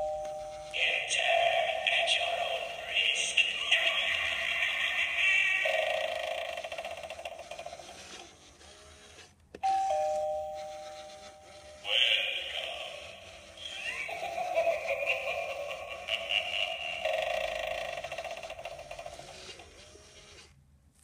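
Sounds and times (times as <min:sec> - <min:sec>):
doorbell button click: 0:09.6 - 0:10.5.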